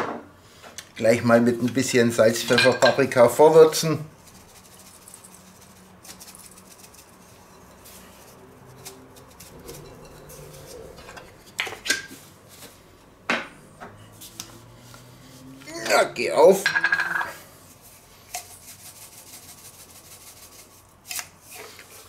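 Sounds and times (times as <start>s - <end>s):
spice shaker pattering: 3.7s - 10.5s, 17.7s - 22.0s.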